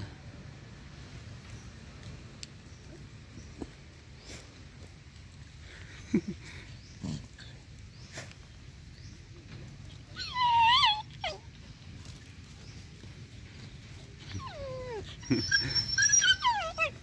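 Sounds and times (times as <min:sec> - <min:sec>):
dog whining yelp: 0:10.1 - 0:11.5, 0:14.2 - 0:17.0.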